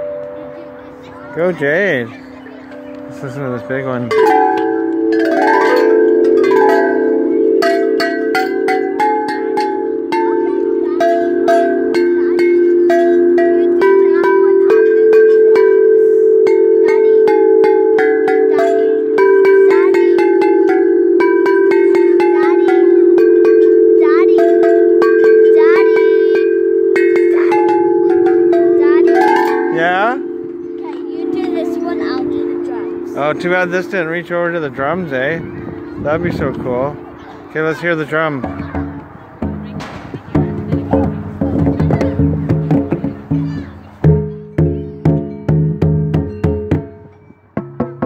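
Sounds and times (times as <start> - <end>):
tubular chimes struck with mallets: 0.0 - 48.0.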